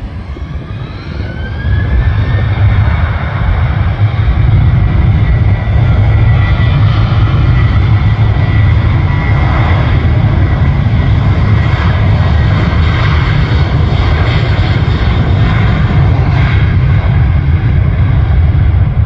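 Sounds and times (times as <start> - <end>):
jet engines roaring: 0.0 - 19.0
wind buffeting microphone: 0.0 - 19.0.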